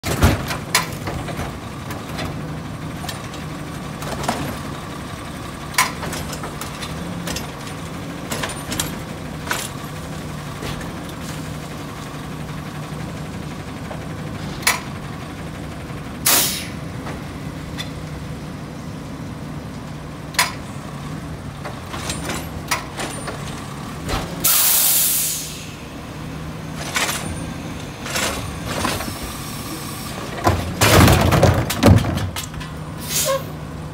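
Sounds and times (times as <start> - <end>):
knocks and clanks of bin: 0.0 - 2.4, 28.1 - 29.2, 30.2 - 32.8
diesel engine running: 0.0 - 33.9
loud air hiss: 16.3 - 16.7, 24.4 - 25.8, 33.0 - 33.5.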